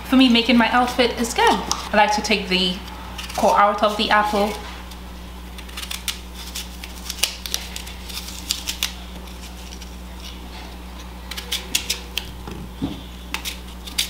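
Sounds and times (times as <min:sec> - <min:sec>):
knife cutting apple: 0:05.5 - 0:10.4.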